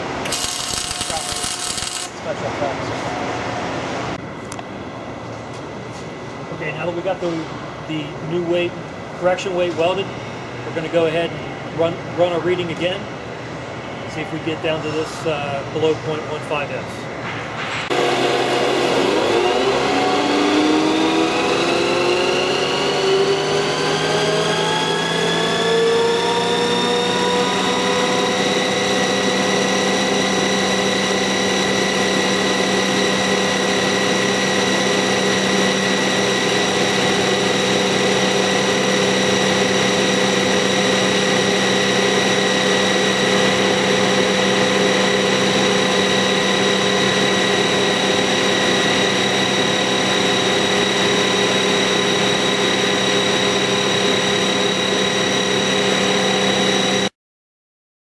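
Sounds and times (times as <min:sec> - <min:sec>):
mulcher rotor whine: 0:00.0 - 0:03.1, 0:17.9 - 0:57.1
dense mechanical noise: 0:00.0 - 0:57.1.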